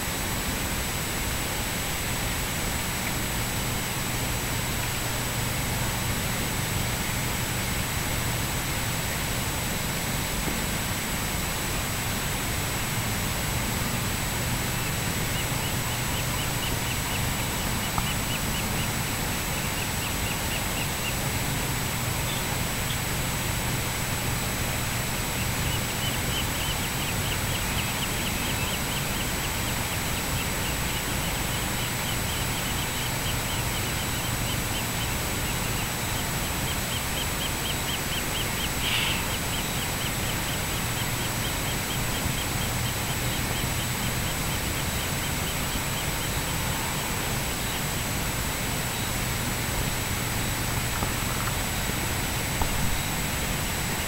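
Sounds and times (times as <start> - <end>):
distant hum and hiss: 0.0 - 54.0
rapid even chirping: 14.2 - 23.1, 24.7 - 49.2.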